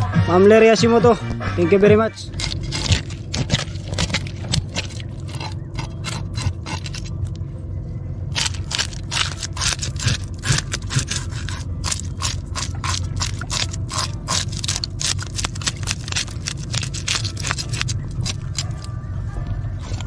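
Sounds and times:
steady low rumble: 0:00.0 - 0:20.0
knife scraping fish scales: 0:02.3 - 0:07.1, 0:08.4 - 0:18.9.

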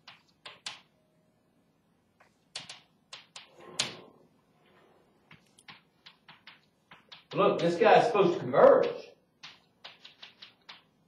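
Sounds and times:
chalk tapping on chalkboard: 0:05.3 - 0:08.0, 0:08.8 - 0:11.0.

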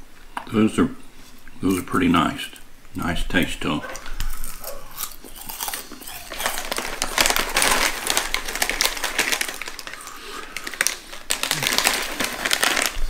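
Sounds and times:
plastic bag crinkling: 0:04.0 - 0:13.0.

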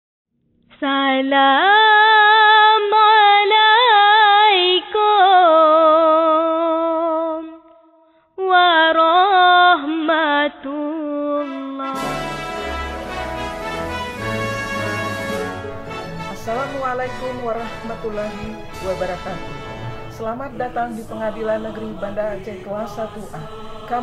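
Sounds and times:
person singing unaccompanied: 0:20.2 - 0:24.0.

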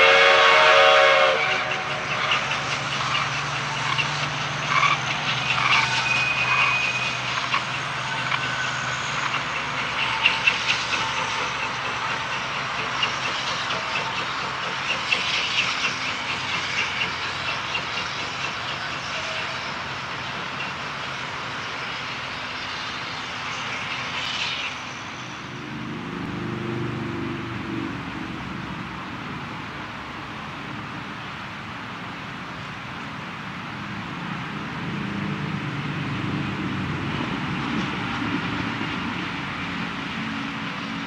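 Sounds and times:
steam hissing: 0:00.0 - 0:25.8
steam locomotive chuffing: 0:00.0 - 0:26.4, 0:35.7 - 0:41.0.

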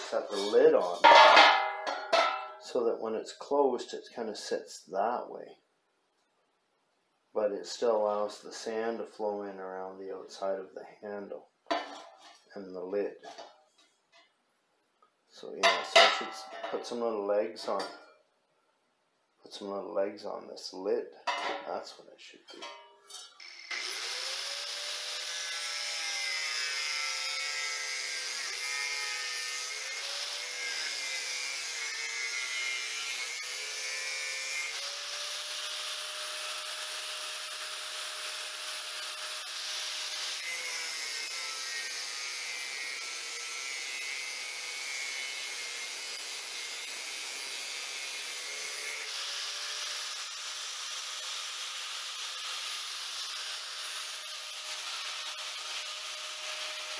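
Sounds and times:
angle grinder grinding metal: 0:00.0 - 0:02.8, 0:22.5 - 0:56.9.

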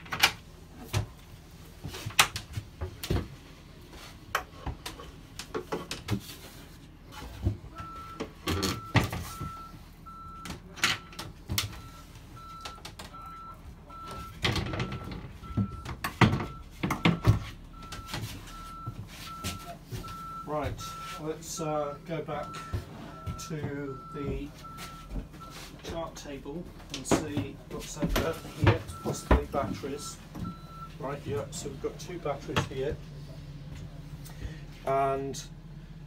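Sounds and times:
reversing alarm beeping: 0:07.8 - 0:25.7, 0:28.2 - 0:31.6.

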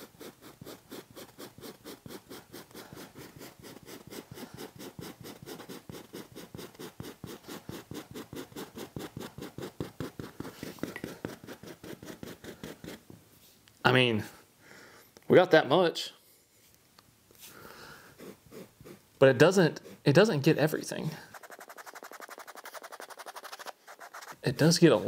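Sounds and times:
brush scratching fabric: 0:00.0 - 0:13.1, 0:18.1 - 0:19.0, 0:19.6 - 0:20.5, 0:21.2 - 0:25.0.

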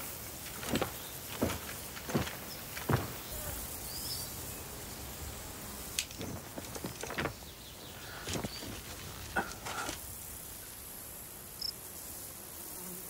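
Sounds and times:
footsteps crunching on gravel: 0:00.0 - 0:03.8, 0:06.0 - 0:10.0
insects: 0:00.0 - 0:13.0.

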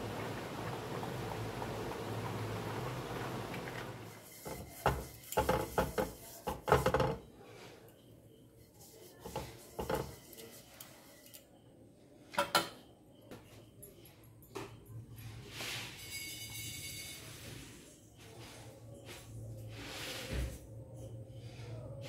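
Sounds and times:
utensils knocking on pan and bowl: 0:04.3 - 0:07.2.

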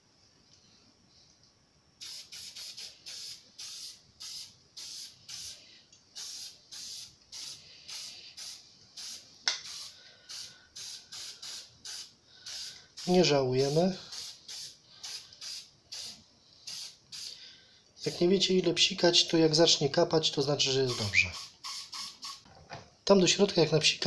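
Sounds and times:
aerosol spray can hissing: 0:02.0 - 0:17.4, 0:20.9 - 0:22.4.

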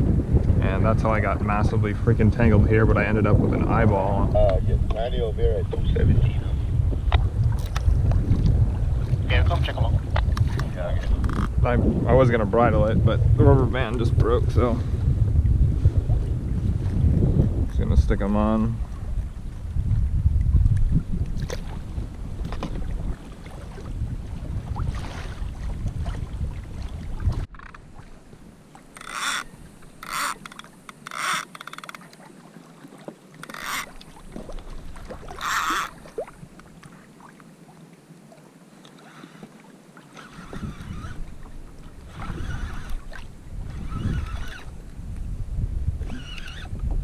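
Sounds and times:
wind rumble on microphone: 0:00.0 - 0:31.1, 0:33.4 - 0:37.0, 0:40.2 - 0:47.0
water splashing: 0:18.8 - 0:45.3.

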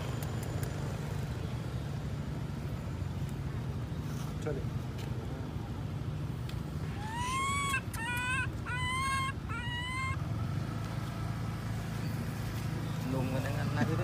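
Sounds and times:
baby monkey whimpering coos: 0:06.9 - 0:10.2.

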